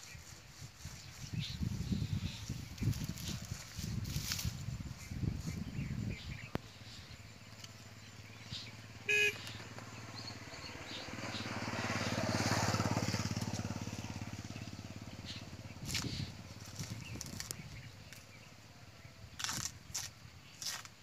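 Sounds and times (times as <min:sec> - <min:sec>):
vehicle engine passing: 0:07.9 - 0:18.5.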